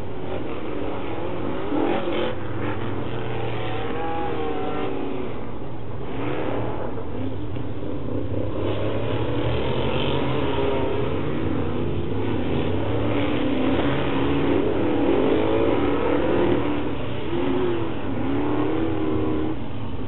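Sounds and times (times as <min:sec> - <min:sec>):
race truck engines revving: 0:00.0 - 0:20.0.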